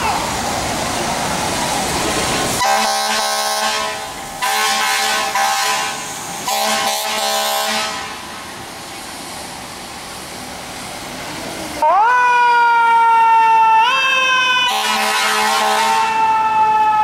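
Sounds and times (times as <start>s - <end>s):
engine noise: 0.0s - 11.9s
fire truck air horn blasts: 2.6s - 8.2s, 13.8s - 16.5s.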